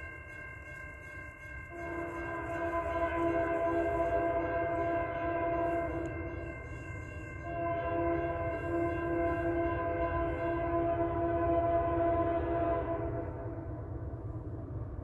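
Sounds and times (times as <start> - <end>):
locomotive air horn chord: 1.6 - 13.6.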